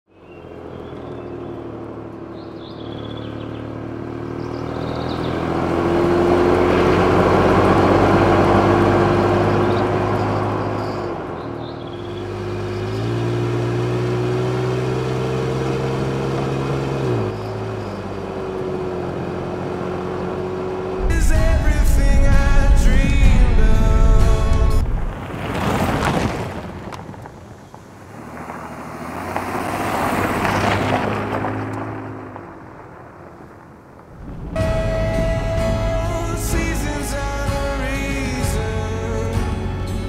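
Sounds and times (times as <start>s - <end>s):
van engine running: 0.2s - 25.1s, 34.2s - 40.0s.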